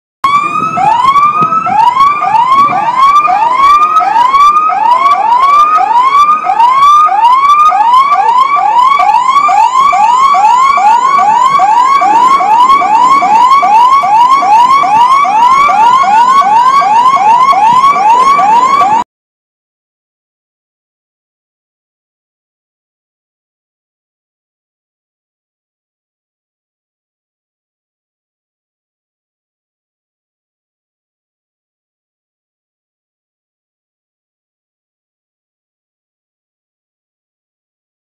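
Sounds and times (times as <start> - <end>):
distant siren wailing: 0.2 - 19.1
siren yelping: 0.2 - 19.1.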